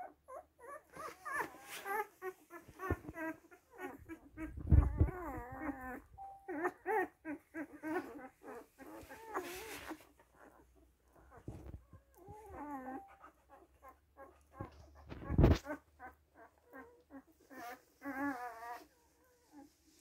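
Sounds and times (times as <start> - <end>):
puppies whimpering and squealing: 0.0 - 20.0
rustle: 0.9 - 3.1, 7.9 - 10.4.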